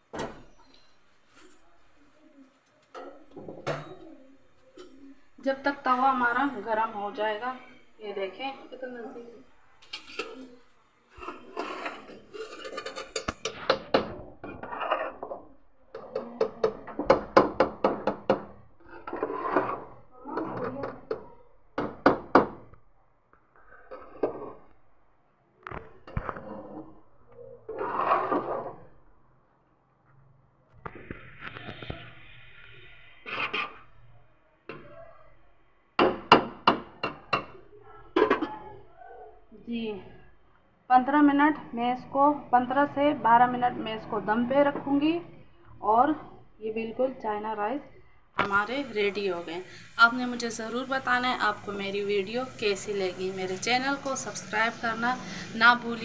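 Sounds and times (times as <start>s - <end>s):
metal spoon scraping metal pot: 9.8s - 13.7s, 14.4s - 15.4s, 18.8s - 21.0s, 27.7s - 28.8s, 33.2s - 34.0s.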